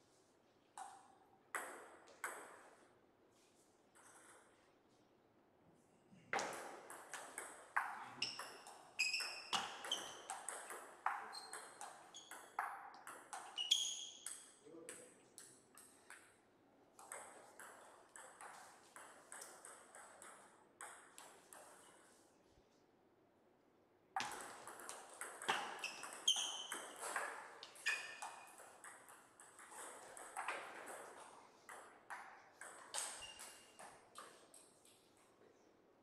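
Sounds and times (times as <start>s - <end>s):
short high squeaks: 9.0s - 10.3s, 13.5s - 14.3s, 25.8s - 27.0s, 27.8s - 28.2s.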